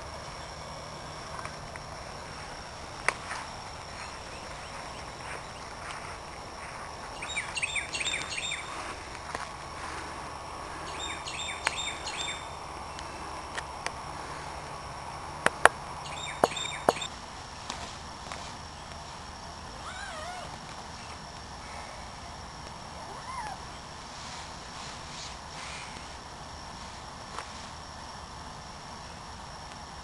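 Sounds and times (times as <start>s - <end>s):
insects humming: 0.0s - 30.0s
birds chirping: 3.3s - 10.0s, 10.6s - 13.4s, 15.9s - 17.1s.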